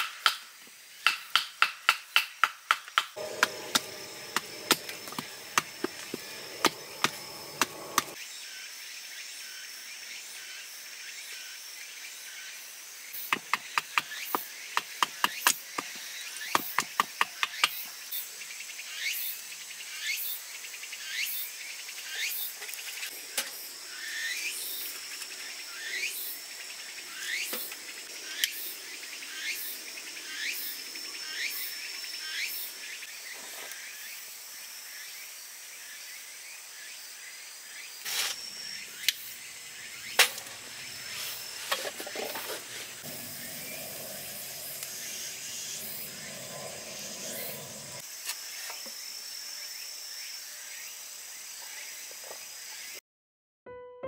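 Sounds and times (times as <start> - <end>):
high insect drone: 3.2 - 53.0
knife scraping wood: 41.1 - 43.3.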